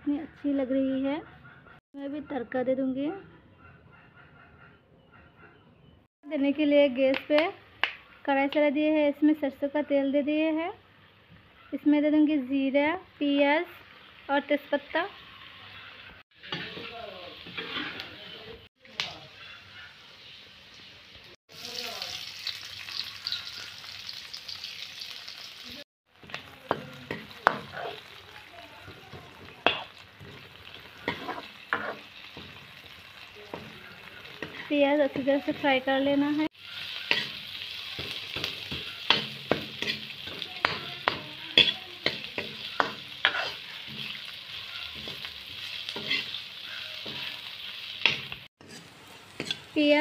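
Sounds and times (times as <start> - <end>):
onions sizzling in hot oil: 12.5 - 50.0
metal ladle scraping a pan: 15.2 - 18.5, 26.8 - 28.2, 29.1 - 35.8, 36.5 - 49.9
spatula knocking against pan: 38.0 - 44.1.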